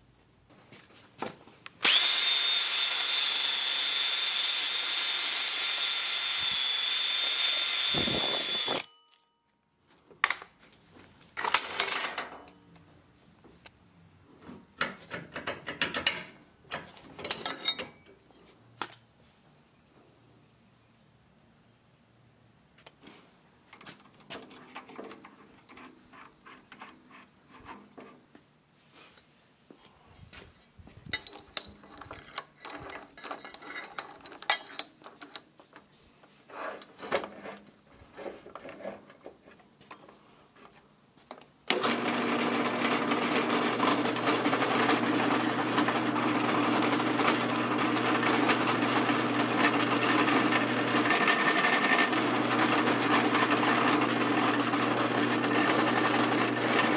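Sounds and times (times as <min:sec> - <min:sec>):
drill press motor running: 0:01.8 - 0:08.9, 0:41.7 - 0:56.9
metal tools clicking and knocking: 0:14.8 - 0:18.2, 0:23.7 - 0:27.0, 0:31.1 - 0:35.9.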